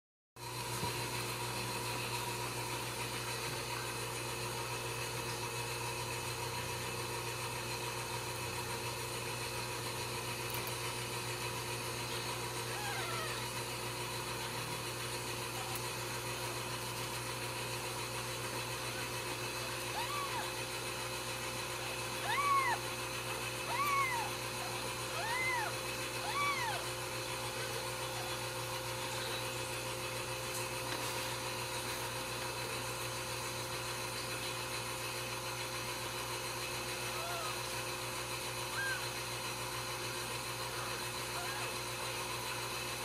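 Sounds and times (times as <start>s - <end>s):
steady mechanical hum: 0.4s - 43.0s
kittens mewing: 12.5s - 13.8s, 19.0s - 20.8s, 21.8s - 29.5s, 37.0s - 37.7s, 38.6s - 39.2s, 40.6s - 42.0s.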